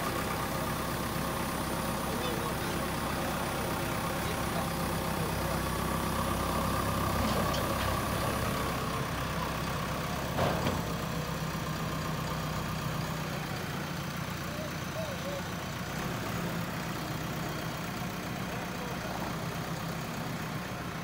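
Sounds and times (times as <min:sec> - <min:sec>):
diesel engine running: 0:00.0 - 0:21.0.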